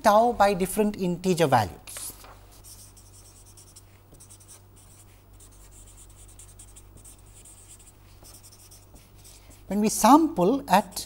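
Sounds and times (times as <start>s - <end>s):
steady low hum: 0.0s - 11.0s
marker scratching on paper: 1.9s - 9.8s.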